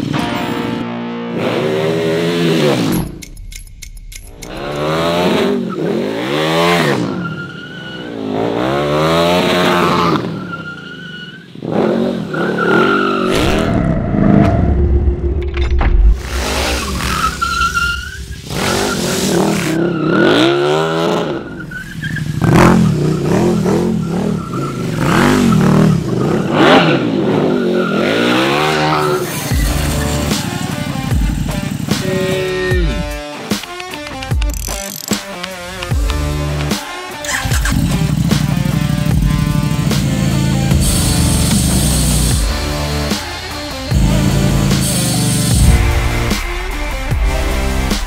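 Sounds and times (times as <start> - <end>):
motorcycle engine revving: 1.1 - 3.5, 4.1 - 7.2, 11.6 - 15.4, 16.1 - 48.0
tires squealing: 4.5 - 13.9, 16.2 - 33.1.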